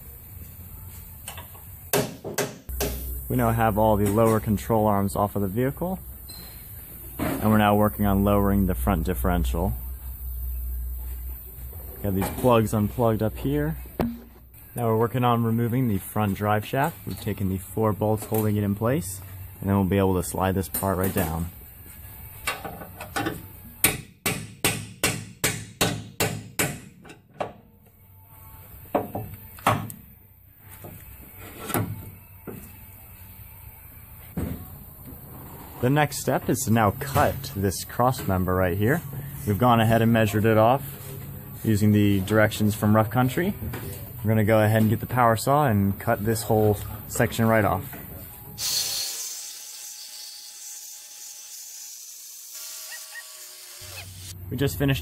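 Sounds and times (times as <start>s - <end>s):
power saw cutting steel: 48.6s - 54.3s.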